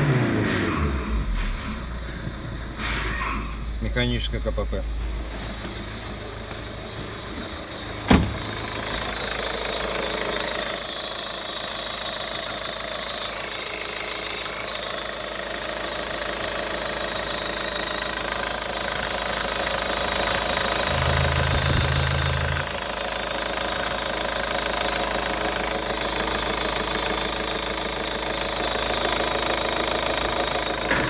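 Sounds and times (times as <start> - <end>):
diesel engine idling: 0.1 - 10.7, 16.1 - 23.2
sharp knock: 8.1 - 8.6, 20.9 - 22.8.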